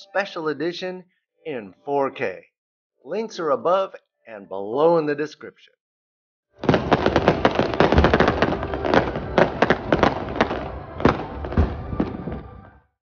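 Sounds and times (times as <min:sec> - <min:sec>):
fireworks crackling pops: 0:06.6 - 0:12.6
fireworks bangs: 0:06.6 - 0:12.9.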